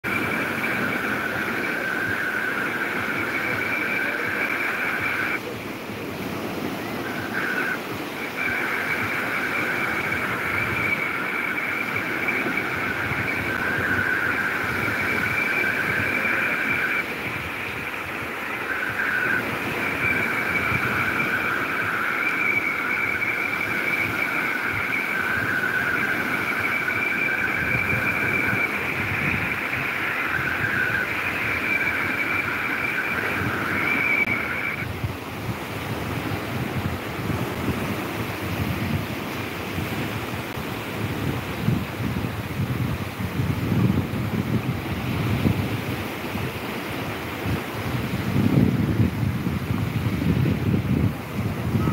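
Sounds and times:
sea waves breaking: 0:00.0 - 0:51.9
high-pitched two-tone whine: 0:00.1 - 0:35.0, 0:51.5 - 0:51.9.

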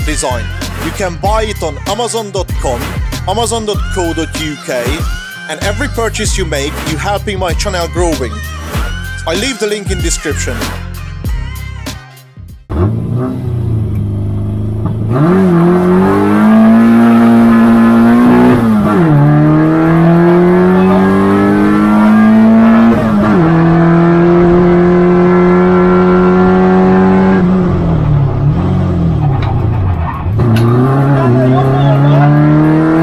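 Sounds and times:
race car engine revving: 0:12.7 - 0:33.0.

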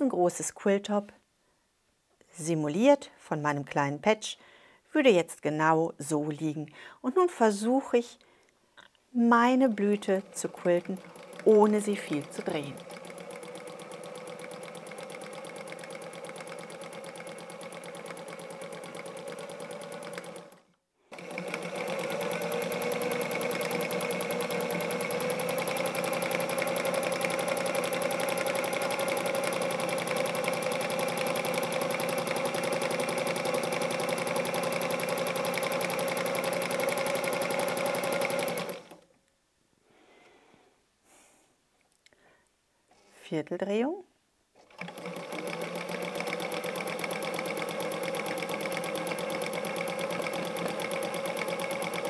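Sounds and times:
sewing machine stitching: 0:09.5 - 0:39.0, 0:44.6 - 0:52.0.

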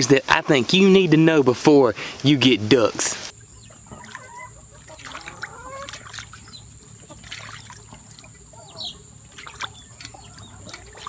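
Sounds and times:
duck dabbling in water: 0:03.9 - 0:08.6.

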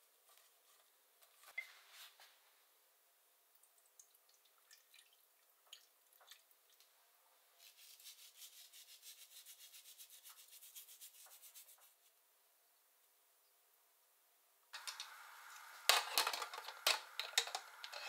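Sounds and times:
salt rubbing rustle: 0:07.6 - 0:12.1.

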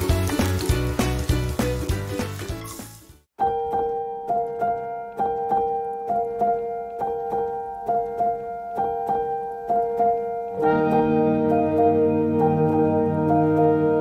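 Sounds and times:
keyboard repeated notes: 0:03.4 - 0:14.0.

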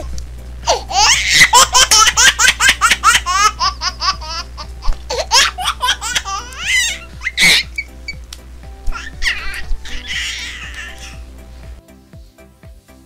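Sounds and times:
high-pitched giggling: 0:00.6 - 0:07.9.

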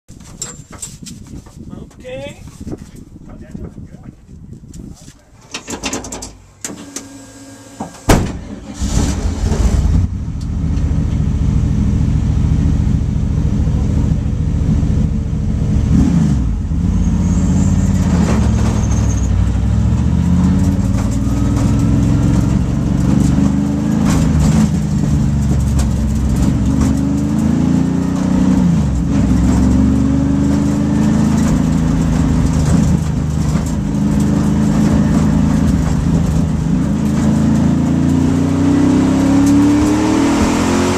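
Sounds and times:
race car engine revving: 0:08.4 - 0:40.9.

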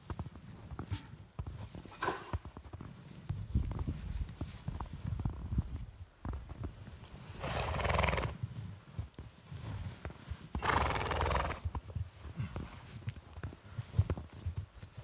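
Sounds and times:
hoof thuds in snow: 0:00.0 - 0:15.0
rustling in snow: 0:02.6 - 0:15.0
horse snorting: 0:07.4 - 0:08.4, 0:10.6 - 0:11.7.

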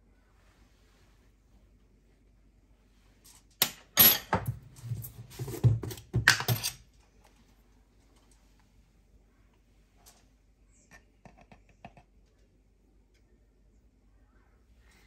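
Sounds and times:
kitchen utensils clinking: 0:03.6 - 0:06.9.

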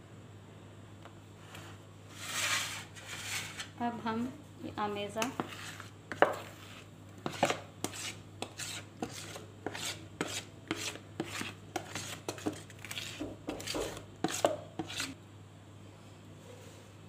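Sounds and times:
spatula scraping bowl: 0:01.4 - 0:03.8, 0:05.2 - 0:15.2.

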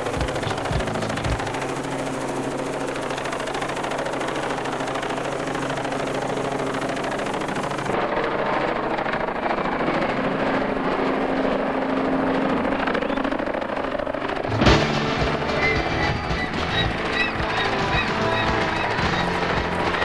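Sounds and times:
helicopter rotor and engine drone: 0:00.0 - 0:20.0.

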